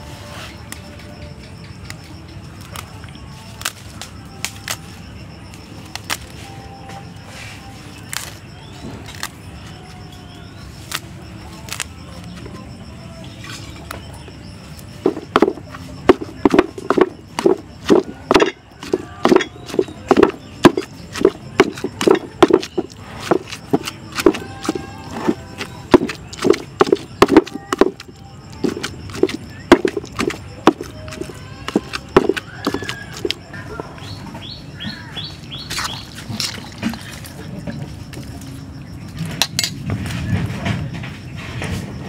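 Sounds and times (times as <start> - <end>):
pestle thudding in mortar: 15.0 - 33.4.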